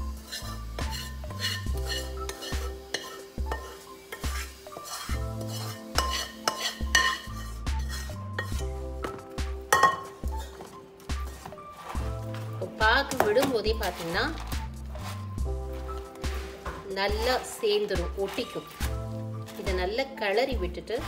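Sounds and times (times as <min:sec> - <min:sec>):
background music with bass line: 0:00.0 - 0:03.6, 0:06.8 - 0:20.0
metal spoon clinking on container: 0:04.9 - 0:08.6, 0:09.7 - 0:10.2.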